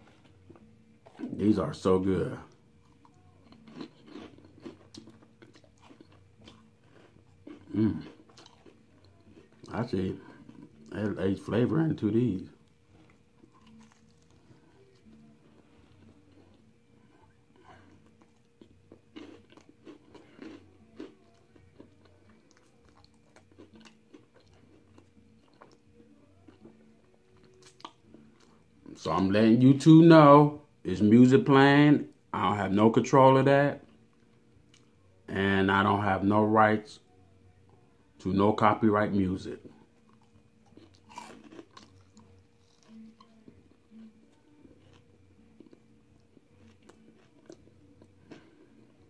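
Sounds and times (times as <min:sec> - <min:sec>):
chips crunching while chewed: 0:02.2 - 0:16.6, 0:17.2 - 0:25.9, 0:39.6 - 0:49.0.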